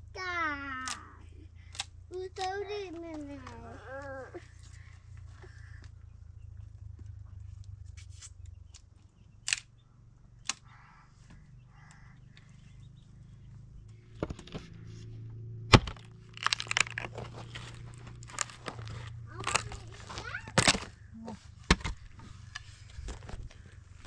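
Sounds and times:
axe chopping tree stump: 15.7s - 17.2s
wood cracking and splintering: 15.7s - 21.0s.

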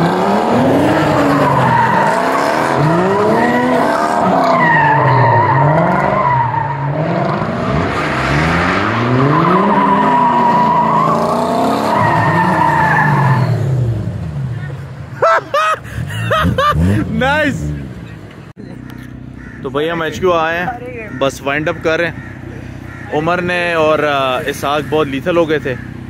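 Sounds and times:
car engines revving: 0.0s - 26.0s
tyres squealing: 0.4s - 13.7s.

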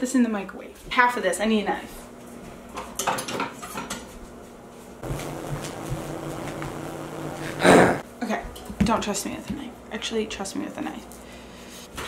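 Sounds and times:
low electric hum: 0.0s - 12.0s
loud noisy burst: 5.0s - 8.0s.

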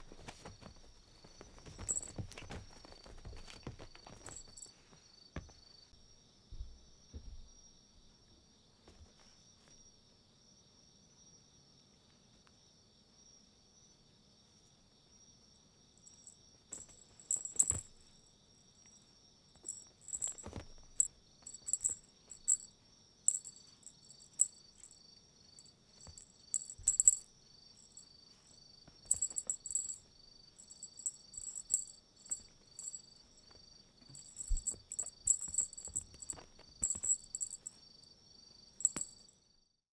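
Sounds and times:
soft thuds of cats pouncing: 0.0s - 5.8s, 6.5s - 7.6s
insects chirring: 0.0s - 39.5s.

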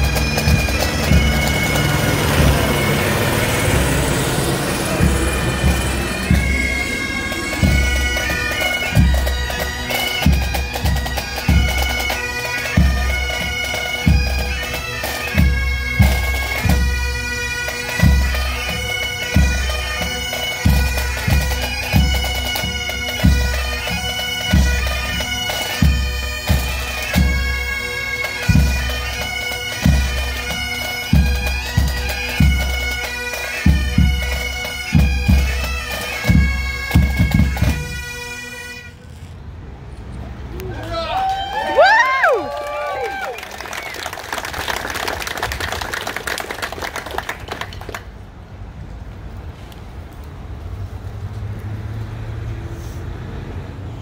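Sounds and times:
bagpipes playing melody: 0.0s - 39.3s.

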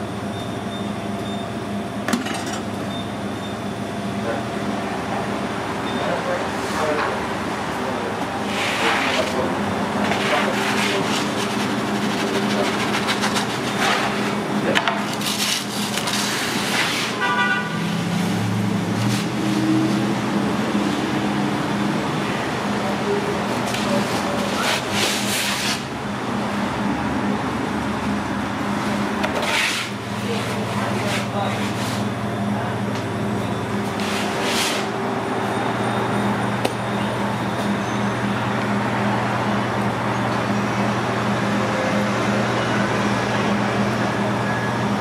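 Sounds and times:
machine hum: 0.0s - 45.0s
pulsing beep: 0.3s - 1.6s, 2.8s - 3.8s
wooden peel scraping oven floor: 8.4s - 14.4s, 15.0s - 17.2s, 29.2s - 32.0s.

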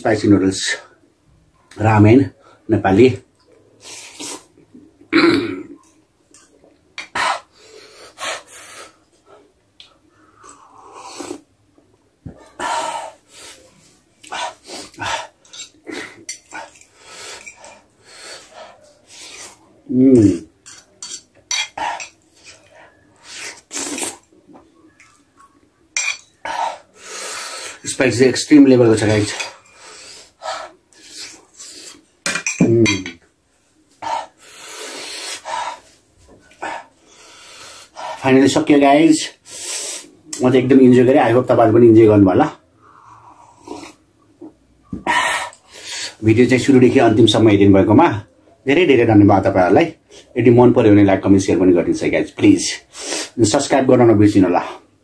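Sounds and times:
noisy breaths: 7.1s - 11.5s, 12.2s - 19.8s, 26.4s - 27.9s, 29.1s - 32.2s, 33.7s - 38.4s, 39.3s - 40.3s, 42.6s - 44.1s, 45.0s - 46.3s
fork scraping ceramic plate: 15.4s - 17.7s, 20.6s - 22.7s
slurping noodles: 21.8s - 24.3s
fork clinking on plate: 26.0s - 26.4s.

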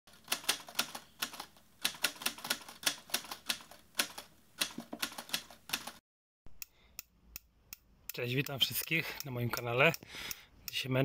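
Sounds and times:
rapid irregular clicks: 6.6s - 10.9s.

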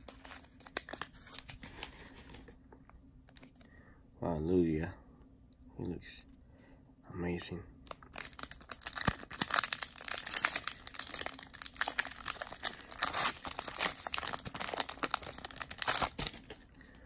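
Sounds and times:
foil wrapper tearing and crinkling: 7.9s - 16.6s.

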